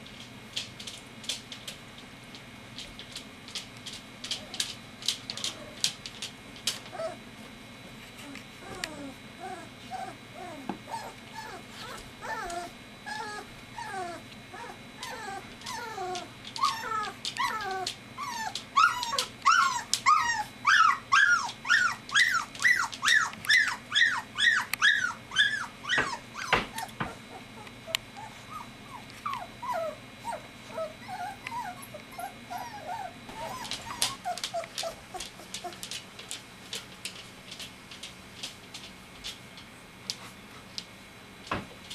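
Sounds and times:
puppies whimpering and squealing: 6.8 - 7.2, 8.2 - 36.0.

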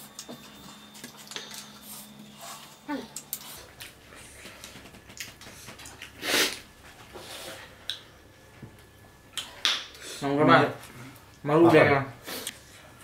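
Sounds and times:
person sniffing: 6.2 - 6.6.

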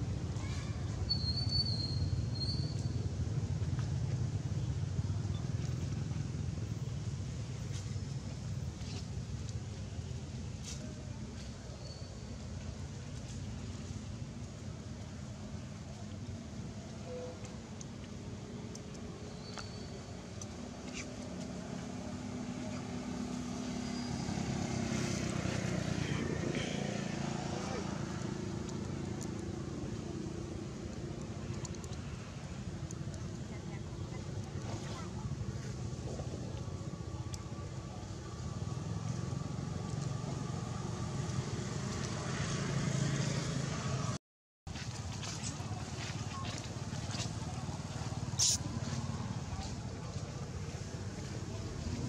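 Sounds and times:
low outdoor rumble: 0.0 - 52.0
faint high chirps: 0.4 - 3.1
vehicle engine humming: 1.8 - 52.0.

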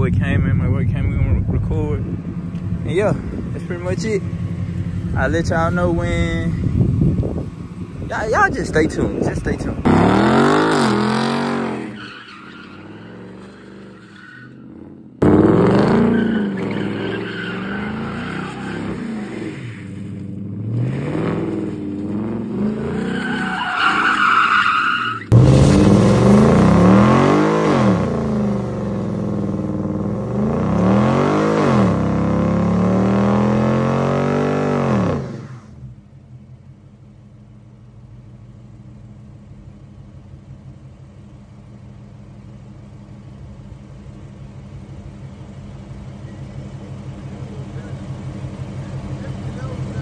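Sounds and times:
car engine revving: 0.0 - 36.8
tires squealing: 8.0 - 35.9.

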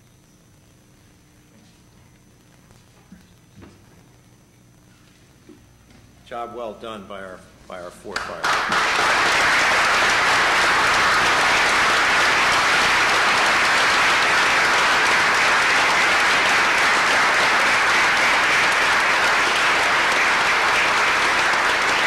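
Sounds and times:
audience applauding: 8.2 - 22.0.

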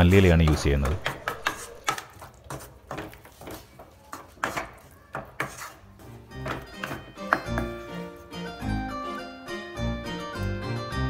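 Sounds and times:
wooden spatula scraping a pan: 0.4 - 7.0
plucked-string background music: 6.0 - 11.0.

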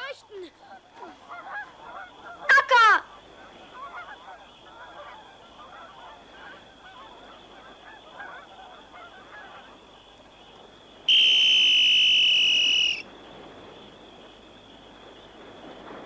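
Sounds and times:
geese cackling faintly: 0.0 - 13.2
high whistle-like tone: 11.1 - 13.0.

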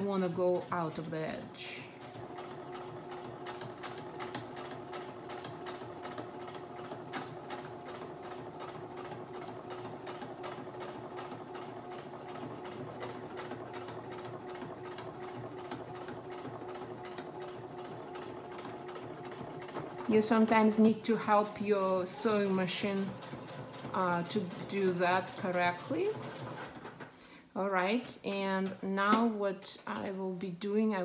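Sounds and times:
sewing machine motor hum: 0.0 - 28.9.

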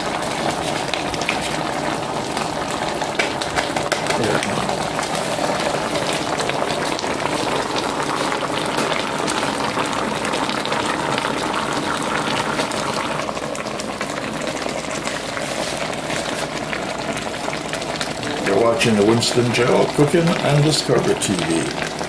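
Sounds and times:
gravy bubbling in a pan: 0.0 - 22.0.

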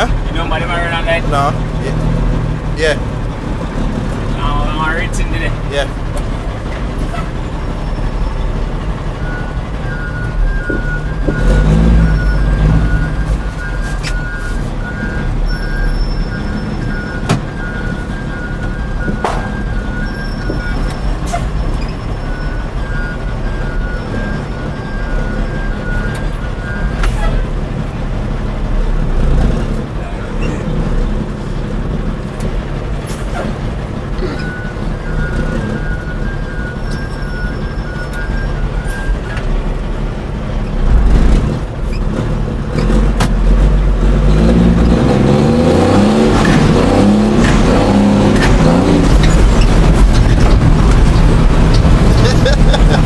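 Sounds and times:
road rumble: 0.0 - 53.0
truck diesel engine running: 0.0 - 53.0.

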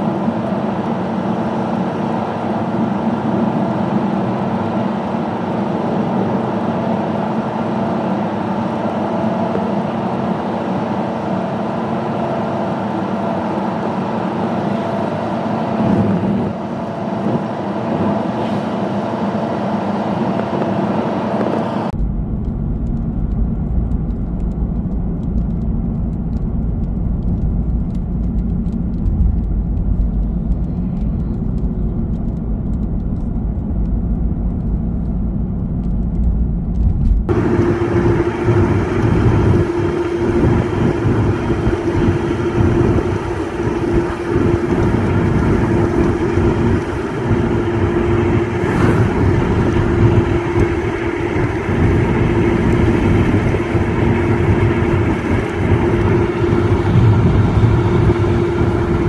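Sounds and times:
car road and engine rumble: 0.0 - 59.0
steady hum: 0.0 - 59.0.

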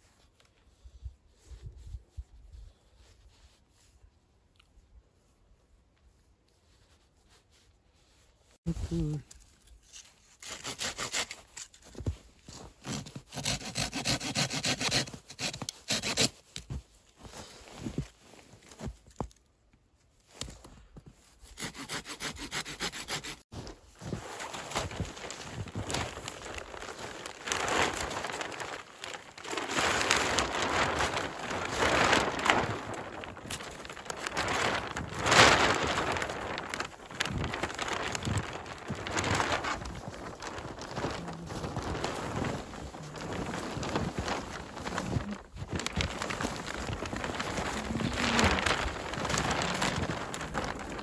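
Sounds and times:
plastic tarp crinkling: 23.6 - 51.0.

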